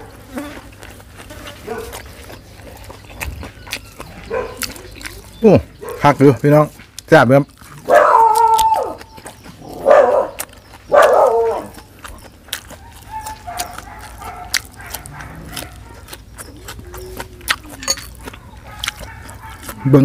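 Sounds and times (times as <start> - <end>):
close-up chewing: 0.0 - 20.0
dog barking: 1.6 - 2.0, 4.2 - 4.8, 5.8 - 6.1, 7.8 - 9.1, 9.7 - 11.9, 12.8 - 16.2, 18.2 - 20.0.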